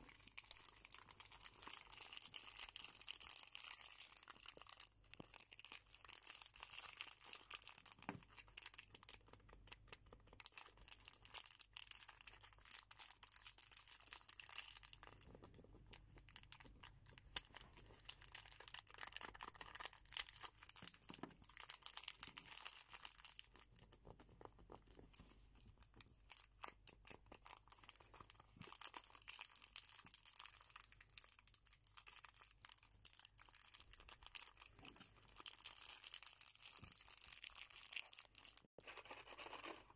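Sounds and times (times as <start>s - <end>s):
plastic wrappers crinkling: 0.0s - 15.5s, 16.2s - 23.6s.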